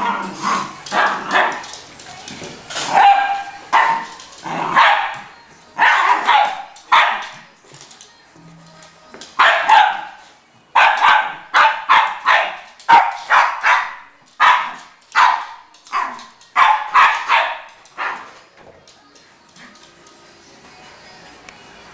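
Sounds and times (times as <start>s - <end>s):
dog barking: 2.8s - 7.4s, 9.4s - 10.2s, 10.8s - 18.4s.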